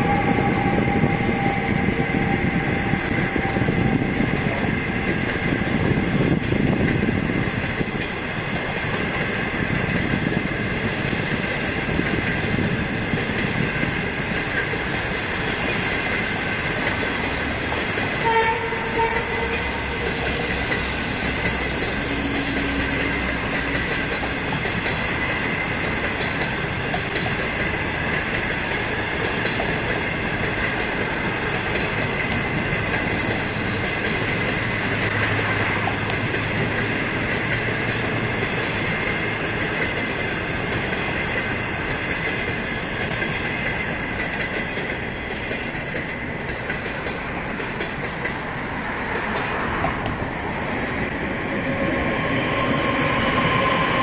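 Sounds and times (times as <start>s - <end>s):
train wheels rumbling on rails: 0.0s - 54.0s
high-pitched ringing tone: 19.5s - 24.6s.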